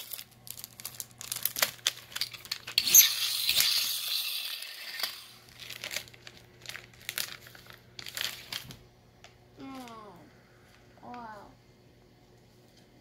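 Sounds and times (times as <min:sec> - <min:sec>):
plastic packaging crinkling: 0:00.0 - 0:04.0, 0:04.6 - 0:08.8.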